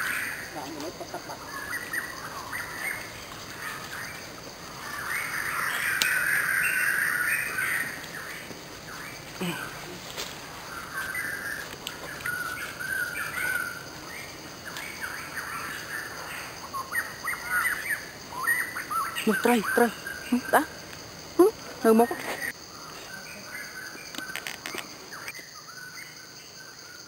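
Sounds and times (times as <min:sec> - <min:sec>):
birds calling and chirping: 0:00.0 - 0:26.3.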